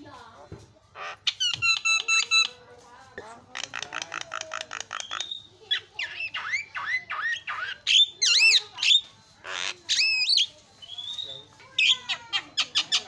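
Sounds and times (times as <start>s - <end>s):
myna calling: 3.5s - 11.2s, 11.8s - 13.0s.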